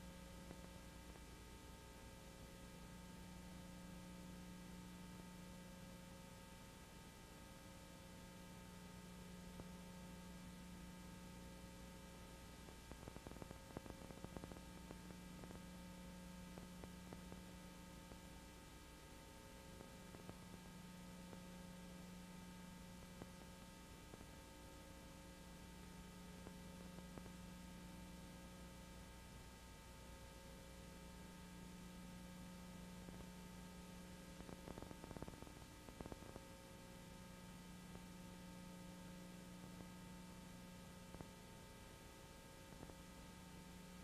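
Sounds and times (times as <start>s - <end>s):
faint electrical hum with hiss: 0.0s - 44.0s.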